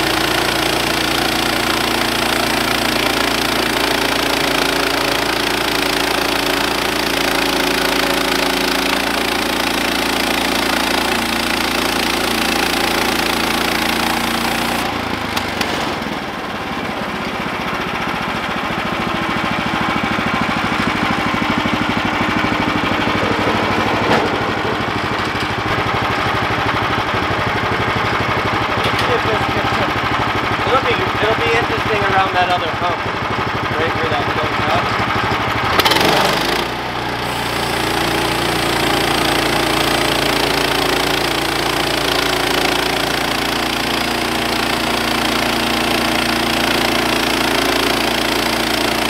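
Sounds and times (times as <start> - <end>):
sawmill engine running: 0.0 - 49.0.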